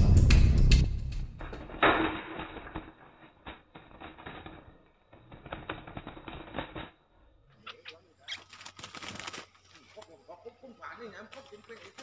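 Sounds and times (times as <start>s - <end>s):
birds fluttering against cage bars: 2.4s - 7.0s, 8.3s - 10.2s, 11.3s - 12.0s.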